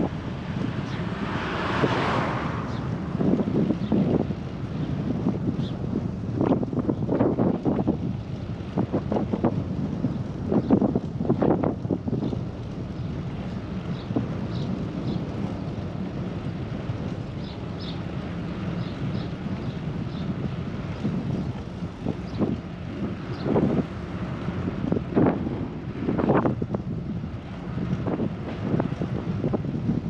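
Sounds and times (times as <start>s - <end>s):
low rumble: 0.0s - 17.3s
wind buffeting microphone: 0.0s - 30.0s.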